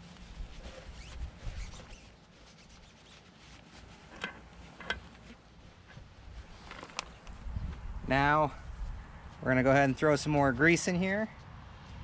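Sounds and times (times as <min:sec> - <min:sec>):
paper towel rubbing and rustling: 0:00.0 - 0:07.2.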